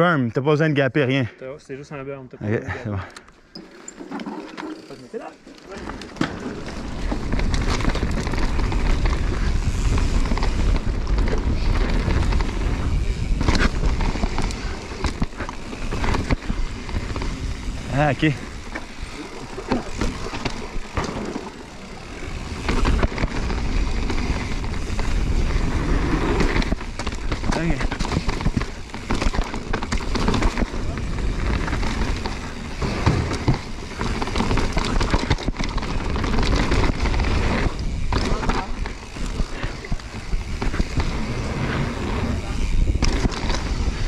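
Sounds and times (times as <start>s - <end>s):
bike rattling and knocking: 3.5s - 44.0s
bike tyre noise: 3.5s - 44.0s
wind rumble on microphone: 7.1s - 17.9s.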